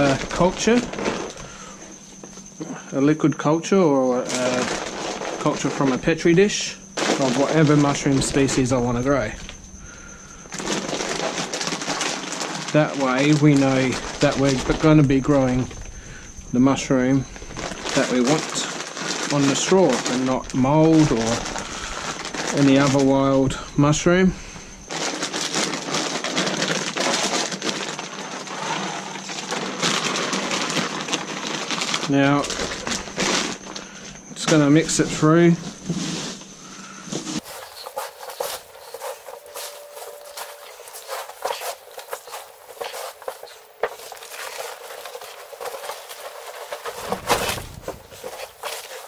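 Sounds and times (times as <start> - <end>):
plastic bag crinkling: 0.0 - 2.9, 4.1 - 49.0
dry straw rustling: 7.0 - 9.2, 10.5 - 15.8, 24.9 - 33.8, 37.3 - 49.0.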